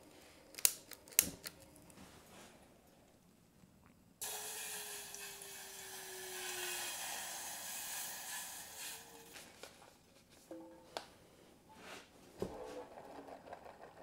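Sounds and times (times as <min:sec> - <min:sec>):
water pouring into metal pot: 0:04.2 - 0:09.4.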